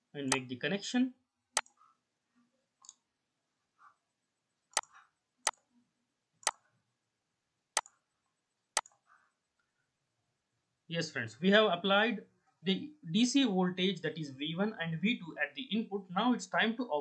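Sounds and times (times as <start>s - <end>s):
faint soft sounds: 1.2s - 16.6s
computer mouse clicking: 1.6s - 1.8s, 2.8s - 3.1s, 4.7s - 5.7s, 8.8s - 9.1s.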